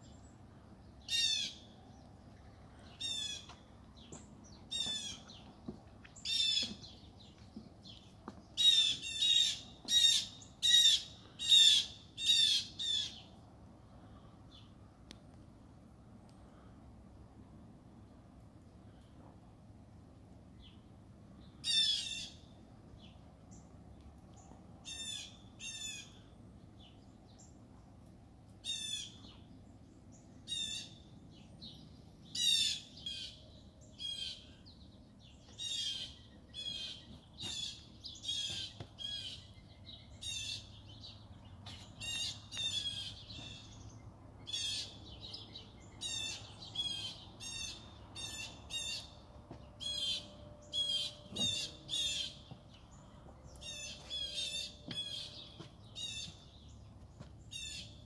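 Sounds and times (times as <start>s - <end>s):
birds chirping harshly: 0.0s - 13.4s, 28.6s - 58.0s.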